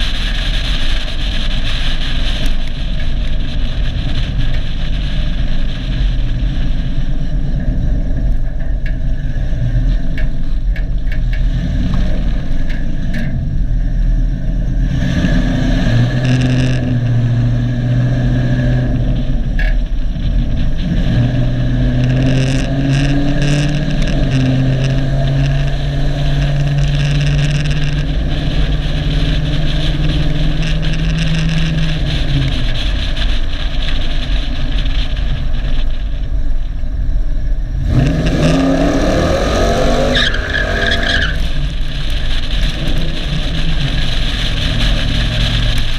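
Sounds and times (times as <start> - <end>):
pickup truck engine revving: 9.1 - 33.2, 37.6 - 45.9.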